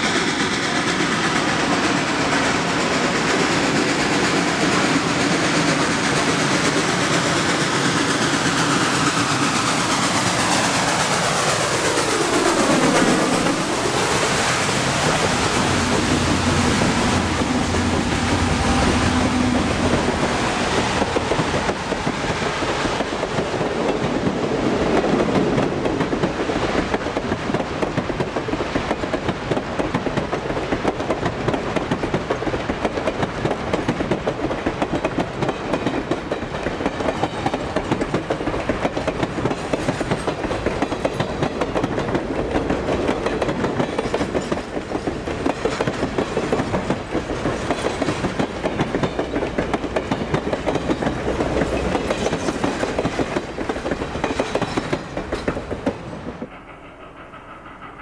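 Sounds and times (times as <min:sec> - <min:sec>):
diesel locomotive engine droning: 0:00.0 - 0:26.8, 0:35.6 - 0:58.0
train wheels clattering on rails: 0:00.0 - 0:58.0.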